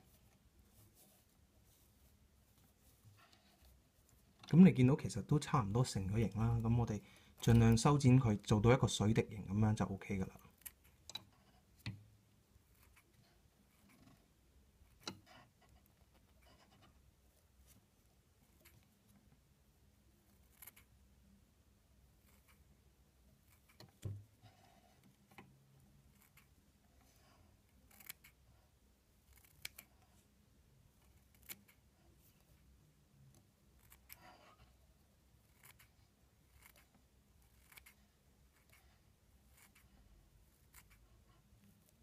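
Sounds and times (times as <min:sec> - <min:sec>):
scissors snipping: 0:29.3 - 0:29.9, 0:37.5 - 0:38.0.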